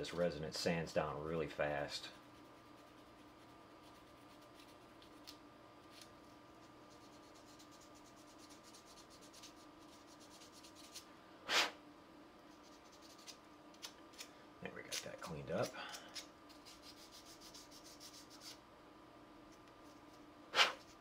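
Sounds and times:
faint hum: 0.0s - 21.0s
sanding strokes: 16.6s - 18.6s.

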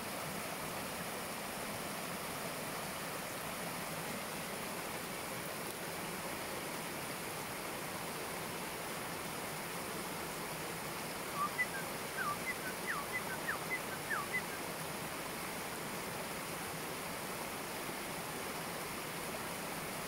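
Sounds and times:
stream rushing over rocks: 0.0s - 20.0s
bird calling falling notes: 11.4s - 14.6s.

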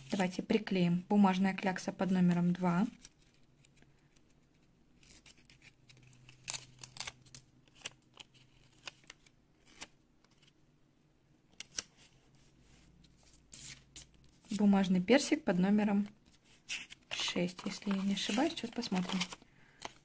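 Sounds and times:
paper crackles: 16.2s - 20.0s.

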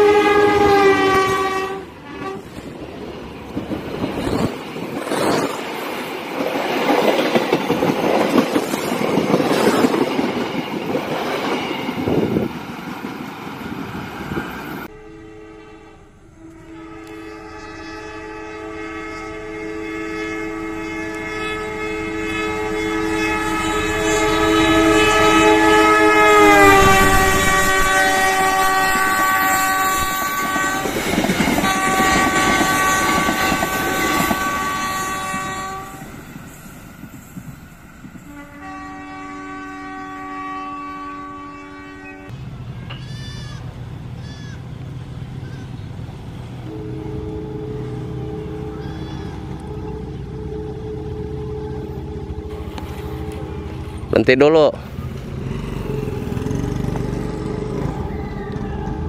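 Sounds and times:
locomotive horn: 0.0s - 2.8s, 14.8s - 36.3s, 38.2s - 44.3s, 46.5s - 59.0s
train wheels rushing by: 0.0s - 15.0s, 15.7s - 40.3s, 42.2s - 59.0s.

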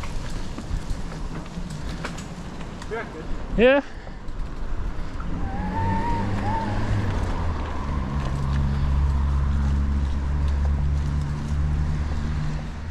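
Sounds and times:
vehicle engine running: 7.2s - 12.9s.

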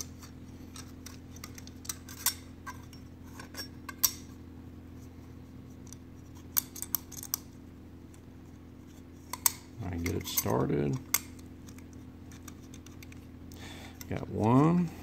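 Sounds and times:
steady low hum: 0.0s - 15.0s
metal parts clinking: 0.7s - 4.3s, 6.5s - 7.5s.

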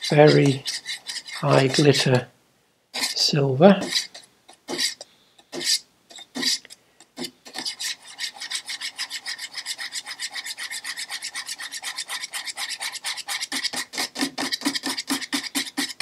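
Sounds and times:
stick scraping inside paint tin: 0.0s - 2.2s, 3.0s - 6.6s, 7.2s - 16.0s.

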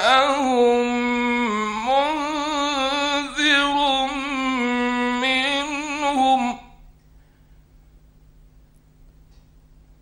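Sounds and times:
man chanting recitation: 0.0s - 6.8s.

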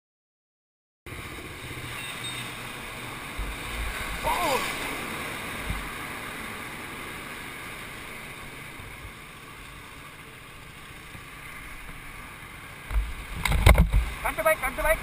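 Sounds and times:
muffled motorcycle engines idling: 7.6s - 13.4s.

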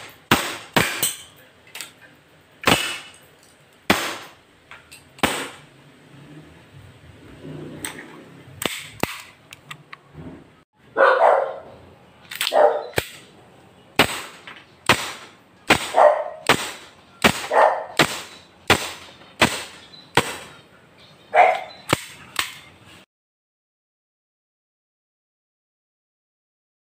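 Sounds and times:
airsoft pistol shots: 0.0s - 1.2s, 2.6s - 3.2s, 3.9s - 4.4s, 5.2s - 5.7s, 14.0s - 20.6s
dog barking: 10.9s - 11.8s, 12.5s - 13.0s, 15.9s - 16.5s, 17.5s - 18.0s, 21.3s - 21.8s.

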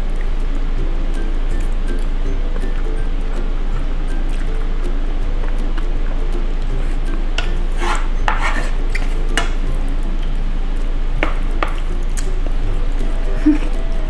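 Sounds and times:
fork scraping plate: 7.7s - 9.2s.

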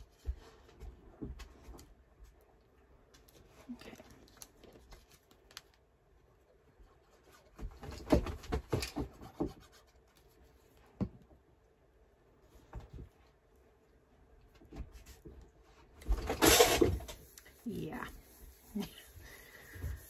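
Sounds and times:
paper rubbing and scratching: 17.1s - 20.0s.

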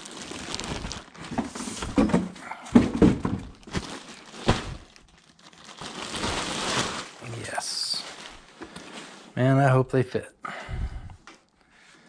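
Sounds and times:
plastic wrapping crinkling: 0.0s - 2.2s, 2.8s - 9.4s
dull thumps: 1.4s - 4.8s.

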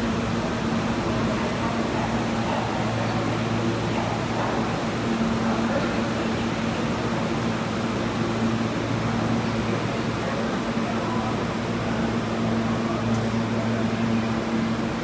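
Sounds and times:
subway train equipment humming: 0.0s - 15.0s.

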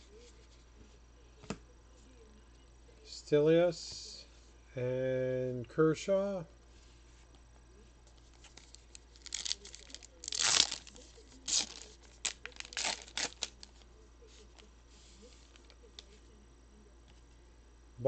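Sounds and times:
card pack wrapper ripping and crinkling: 8.4s - 13.8s.

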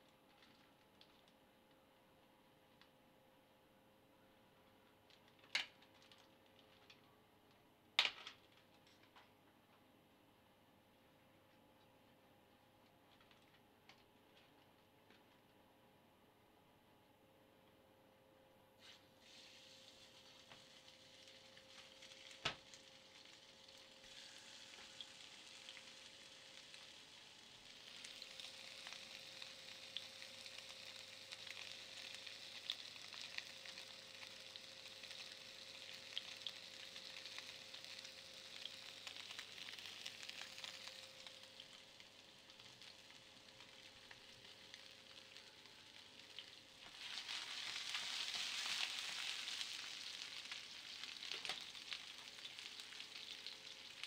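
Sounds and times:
faint steady hum: 0.0s - 54.0s
flour and milk pouring into bowl: 35.9s - 54.0s.

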